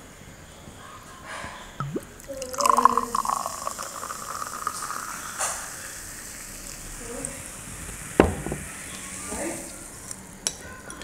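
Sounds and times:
carbonated drink pouring into glass: 1.8s - 6.9s
foam fizzing in glass: 1.8s - 9.8s.

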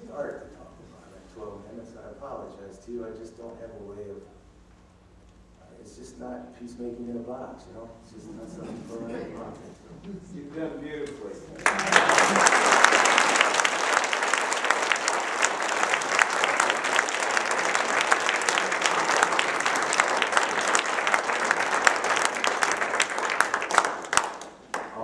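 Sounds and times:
audience applauding: 11.6s - 25.0s.

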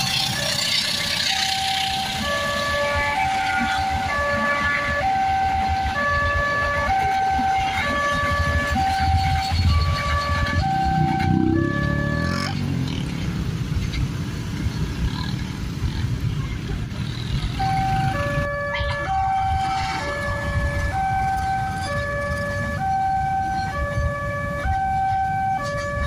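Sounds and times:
motorcycle engines: 0.0s - 26.0s
traffic noise: 0.0s - 26.0s
level crossing warning alarm: 0.6s - 12.6s, 17.5s - 26.0s.

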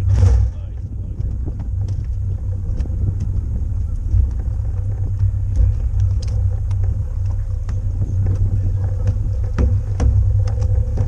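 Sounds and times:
wind buffeting microphone: 0.0s - 11.0s.

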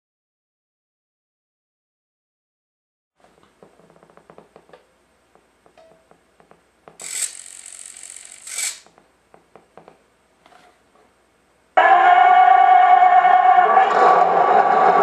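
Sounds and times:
quick mechanical clicks: 7.0s - 8.9s.

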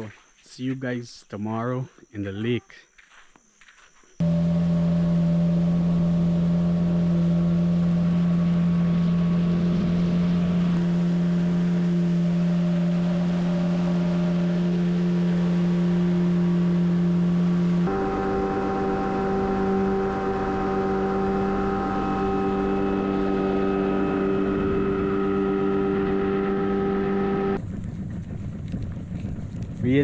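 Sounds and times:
wind: 0.0s - 30.0s
outboard motor running: 4.2s - 29.9s
water rushing: 4.3s - 26.9s.

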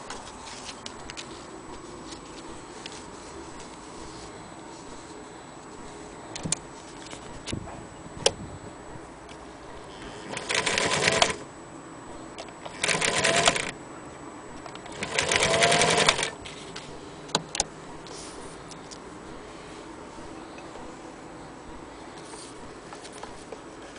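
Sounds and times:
electric sewing machine stitching: 10.2s - 11.4s, 12.6s - 13.8s, 14.9s - 16.4s.

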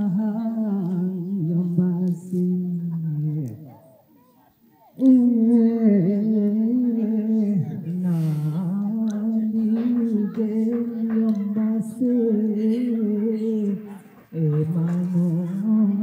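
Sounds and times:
man singing into a microphone: 0.0s - 3.7s, 5.0s - 16.0s.

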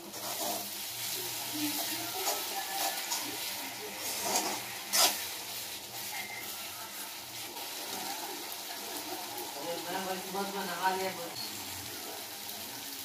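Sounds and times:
spatula scraping metal pan: 0.0s - 0.8s, 1.7s - 6.5s
gravy sizzling: 0.0s - 13.0s.

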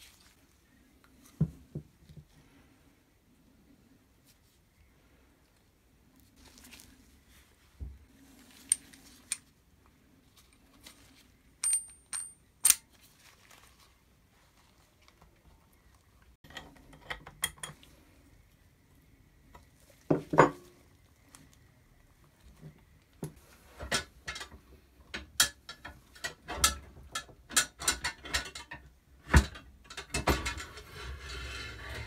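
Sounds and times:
metal parts clinking: 11.6s - 12.8s.

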